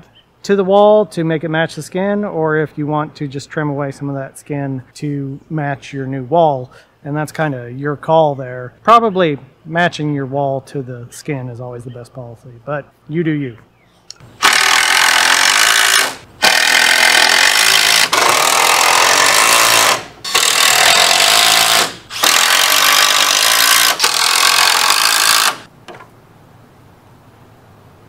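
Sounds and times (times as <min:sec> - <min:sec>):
cordless drill driving screws: 0:14.4 - 0:25.7.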